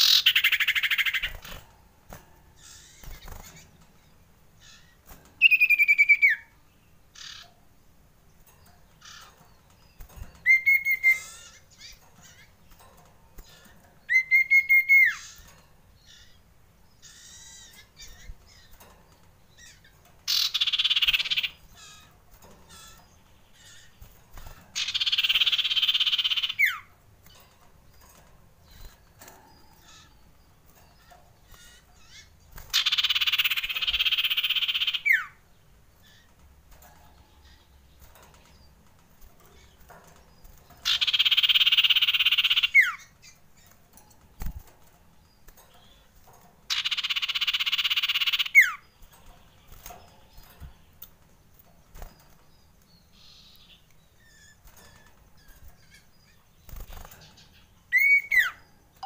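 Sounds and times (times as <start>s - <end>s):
harsh rasping bird calls: 0.0s - 1.6s, 2.6s - 3.8s, 7.1s - 7.6s, 19.6s - 22.1s, 22.7s - 26.9s, 30.9s - 35.4s, 40.4s - 43.8s, 46.7s - 50.5s, 53.0s - 59.0s.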